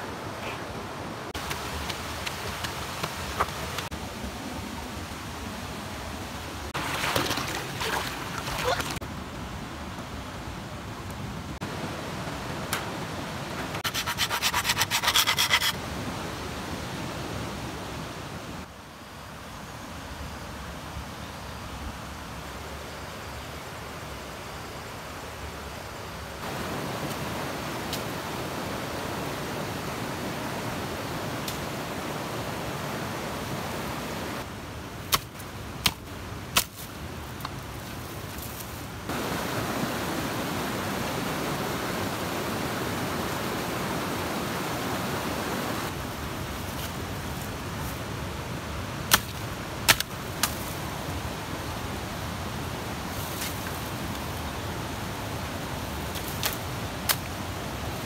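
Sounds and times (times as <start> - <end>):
rushing outdoor noise: 0.0 - 58.0
dry bamboo snapping: 36.6 - 37.6, 49.1 - 50.7, 56.1 - 57.3.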